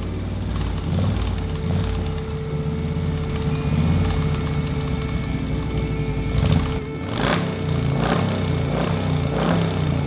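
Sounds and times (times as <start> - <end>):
engine low rumble: 0.0 - 10.0
steady hum: 0.0 - 10.0.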